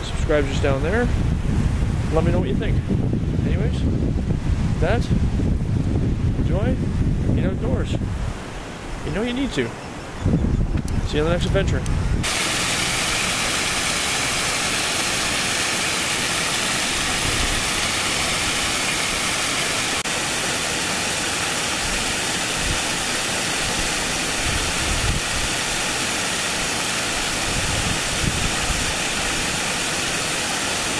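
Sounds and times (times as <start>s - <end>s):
waterfall rushing and splashing: 12.2s - 30.9s.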